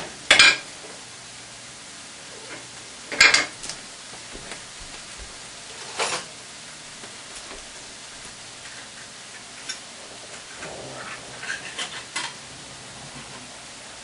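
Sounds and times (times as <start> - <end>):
faint steady hiss: 0.0 - 14.0
dishes and utensils clattering: 2.5 - 3.6, 5.7 - 6.3, 10.6 - 12.4.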